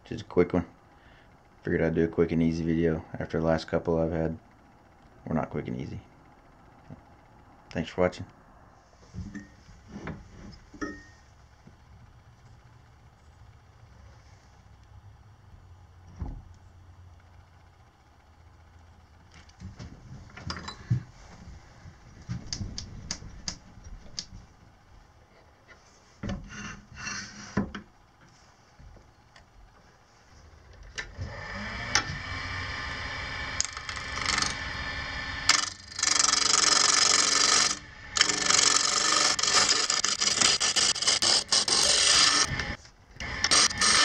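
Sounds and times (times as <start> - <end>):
turning tool scraping wood: 25.3 - 27.7, 31.5 - 44.0
lathe motor running: 30.5 - 44.0.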